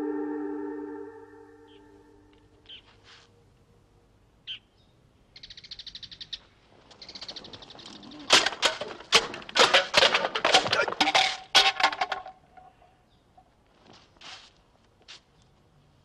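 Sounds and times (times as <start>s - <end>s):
swords clashing: 8.3s - 11.9s.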